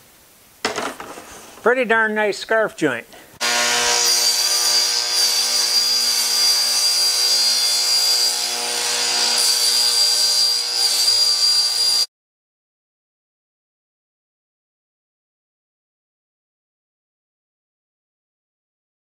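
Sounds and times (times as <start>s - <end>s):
table saw whining: 3.4s - 12.1s.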